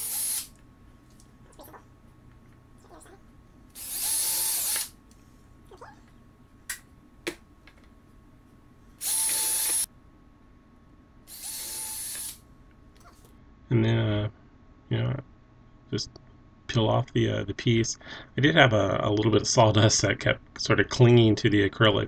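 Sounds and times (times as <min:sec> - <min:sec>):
cordless drill whine: 0:00.0 - 0:00.5, 0:03.8 - 0:04.9, 0:09.0 - 0:09.9, 0:11.3 - 0:12.4.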